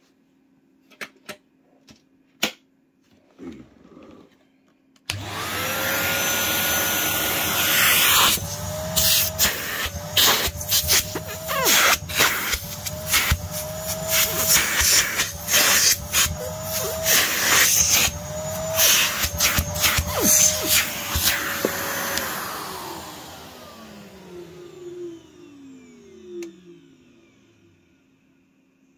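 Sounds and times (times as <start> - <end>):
vacuum cleaner running: 5.1 - 28.9.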